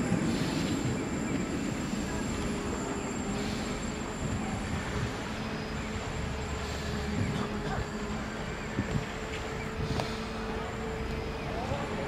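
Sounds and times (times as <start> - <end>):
streetcar wheels rumbling on rails: 0.0 - 12.0.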